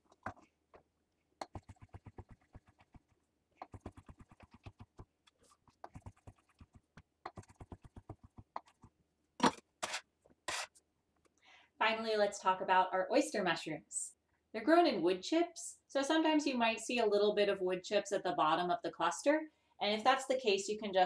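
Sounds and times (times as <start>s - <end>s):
blade scraping across board: 9.8s - 10.8s.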